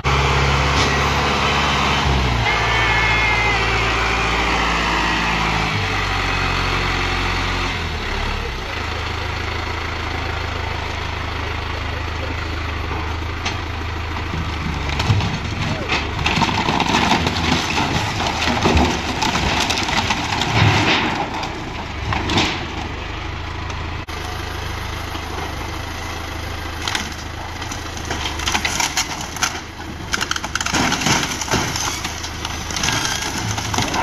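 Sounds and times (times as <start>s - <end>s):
tractor diesel engine running: 0.0s - 34.0s
wooden boards splintering: 14.5s - 22.7s, 26.9s - 34.0s.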